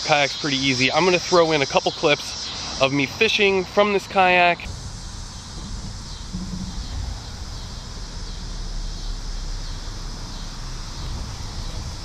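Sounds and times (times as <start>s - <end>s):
constant high hiss: 0.0s - 12.0s
low rumble: 4.6s - 12.0s.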